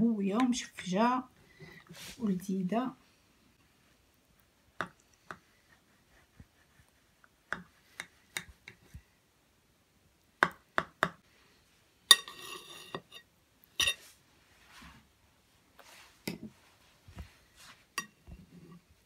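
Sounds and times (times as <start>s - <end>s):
knife clinking on ceramic plate: 12.1s - 14.0s.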